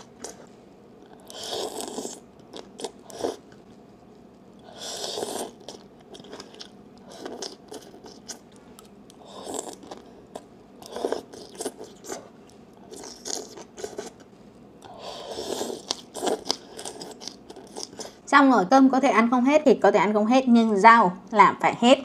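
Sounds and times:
crisp chewing: 0.0 - 18.2
person slurping soup: 1.2 - 2.2, 4.6 - 5.8, 15.0 - 18.2.

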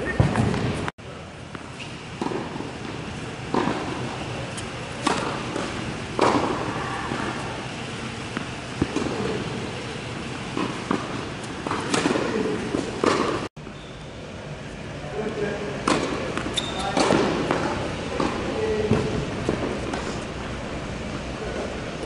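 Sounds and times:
racket hitting tennis ball: 1.5 - 13.5, 15.8 - 20.3
tennis ball bouncing: 1.5 - 13.5, 15.8 - 20.2.

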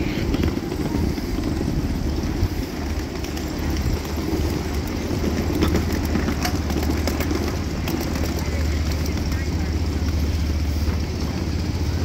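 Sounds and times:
miniature train rumbling: 0.0 - 12.0.

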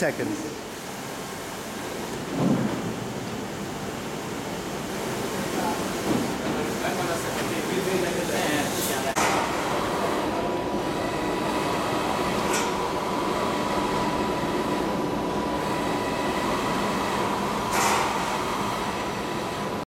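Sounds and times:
printer mechanical drone: 0.0 - 19.8.

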